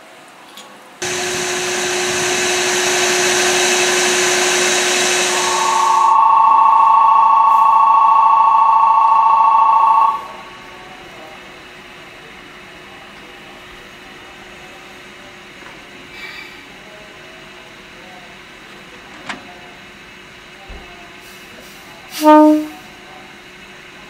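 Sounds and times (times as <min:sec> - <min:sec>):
two-tone electric signal: 0:01.0 - 0:10.8, 0:22.2 - 0:22.8
whirring machine hum: 0:01.0 - 0:13.0.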